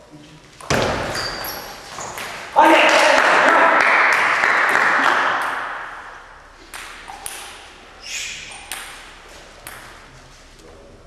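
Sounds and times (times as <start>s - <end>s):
table tennis ball hits: 4.7s - 7.7s, 8.5s - 10.1s.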